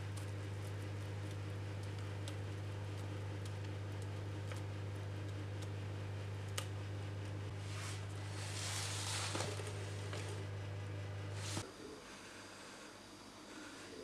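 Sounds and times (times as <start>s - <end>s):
batter dripping ticks: 0.0s - 7.4s
steady low hum: 0.0s - 14.0s.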